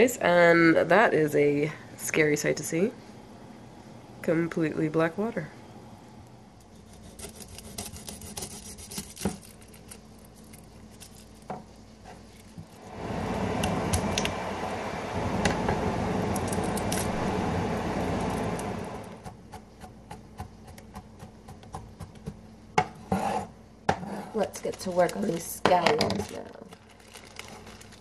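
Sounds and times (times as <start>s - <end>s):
garlic skins crackling: 6.8s - 12.9s, 24.4s - 28.0s
loud rustling with crackles: 26.2s - 28.0s.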